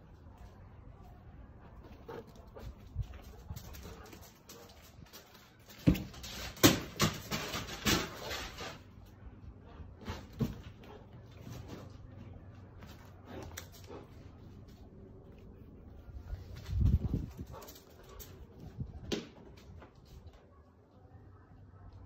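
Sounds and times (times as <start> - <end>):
rubber balls knocking on pavers: 5.0 - 8.3.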